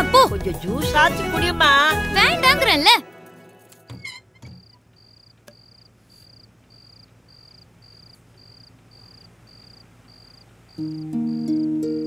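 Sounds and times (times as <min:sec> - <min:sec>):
cricket chirping: 0:04.0 - 0:12.0.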